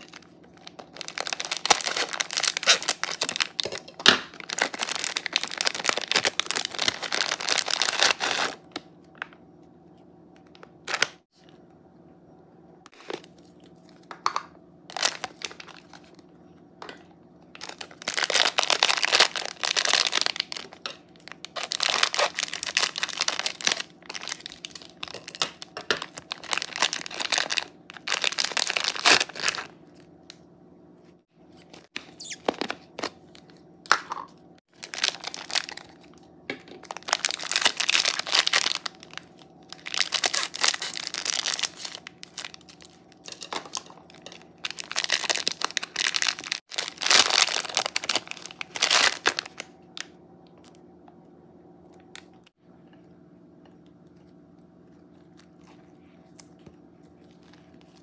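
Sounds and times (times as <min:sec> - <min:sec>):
foam beads crunching: 0:00.0 - 0:08.7, 0:17.6 - 0:29.7, 0:34.7 - 0:36.1, 0:36.8 - 0:49.7
plastic wrap crinkling and tearing: 0:00.0 - 0:08.9, 0:10.6 - 0:11.2, 0:14.9 - 0:16.3, 0:17.6 - 0:30.1, 0:34.7 - 0:50.8.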